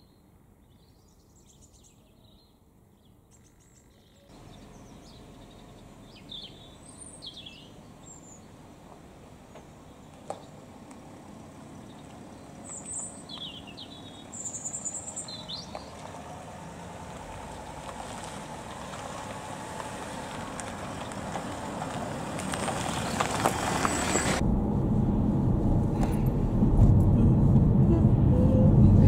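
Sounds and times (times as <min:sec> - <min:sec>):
bird chirping: 0:00.0 - 0:08.6, 0:11.4 - 0:16.1
car engines running: 0:04.3 - 0:29.0
road noise inside moving car: 0:04.3 - 0:29.0
tyres crunching over gravel: 0:08.3 - 0:24.4.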